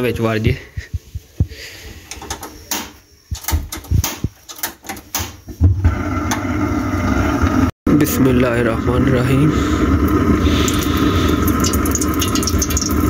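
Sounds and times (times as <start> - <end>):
gas burner hissing: 8.9 - 13.0.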